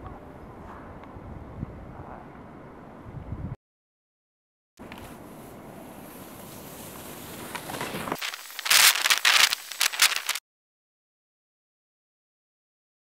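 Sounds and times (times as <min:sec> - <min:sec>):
faint outdoor noise: 0:00.0 - 0:03.5, 0:04.8 - 0:10.4
crunching and rustling: 0:07.5 - 0:10.4.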